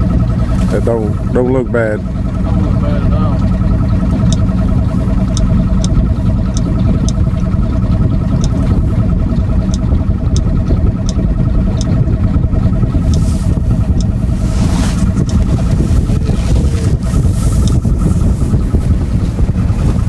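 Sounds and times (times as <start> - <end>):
boat motor running: 0.0 - 20.0
faint sharp ticks: 5.3 - 7.2.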